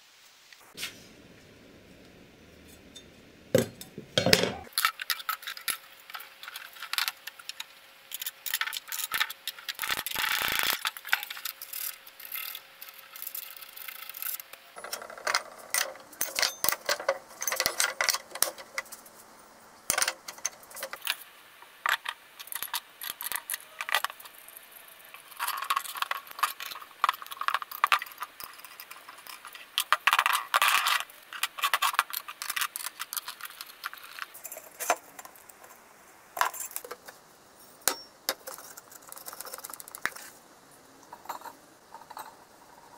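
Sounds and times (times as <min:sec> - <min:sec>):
metal parts clinking on workbench: 0:14.8 - 0:18.6.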